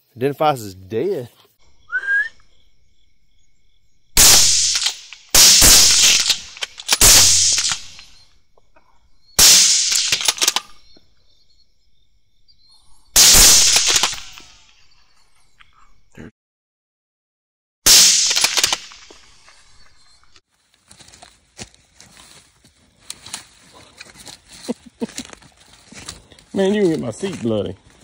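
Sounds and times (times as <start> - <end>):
rifle shots with echo: 4.2 - 8.2, 9.4 - 10.8, 13.2 - 14.5, 17.9 - 19.2.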